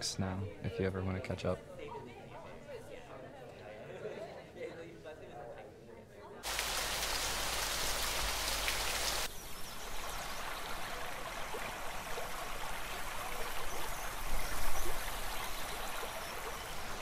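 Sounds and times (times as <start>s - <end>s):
bright steady hiss: 6.4s - 17.0s
creek water babbling over rocks: 6.4s - 17.0s.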